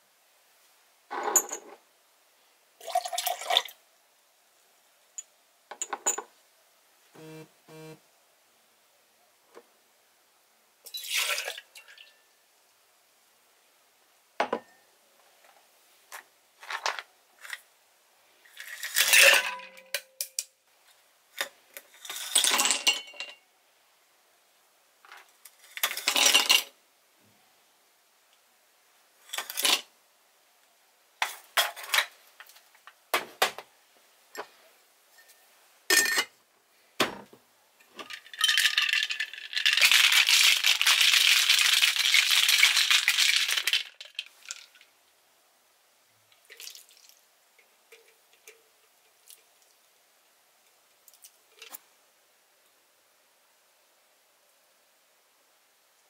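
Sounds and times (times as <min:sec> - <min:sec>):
ice cubes rattling into glass: 0:18.5 - 0:19.8, 0:38.0 - 0:44.8
glassware clinking: 0:35.9 - 0:36.3.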